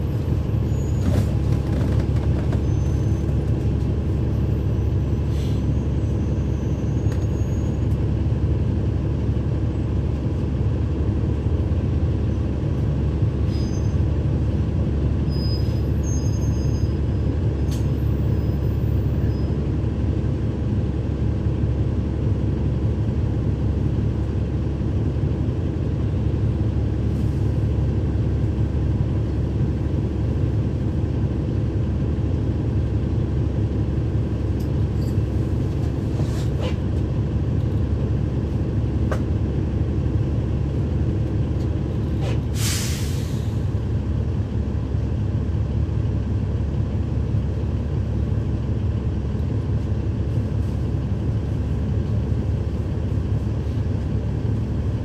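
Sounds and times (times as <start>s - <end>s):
bus diesel engine running: 0.0s - 55.0s
air brake hiss: 5.3s - 5.8s, 42.2s - 43.7s.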